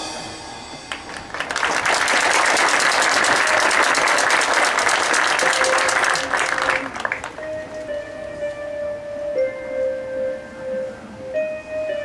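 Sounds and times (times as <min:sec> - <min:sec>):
audience applause: 0:00.9 - 0:07.4.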